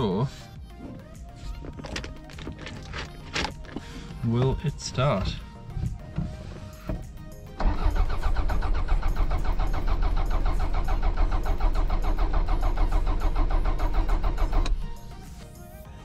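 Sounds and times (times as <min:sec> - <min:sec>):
engine cranking on starter motor: 0:07.6 - 0:15.0.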